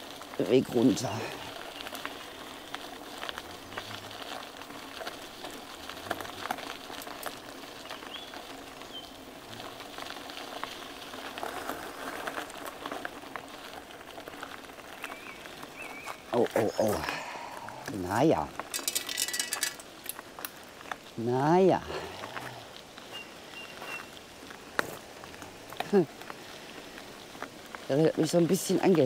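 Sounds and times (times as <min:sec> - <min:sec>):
bicycle tyres crunching on gravel: 0:00.0 - 0:29.0
bicycle clicks and rattles: 0:18.6 - 0:20.6.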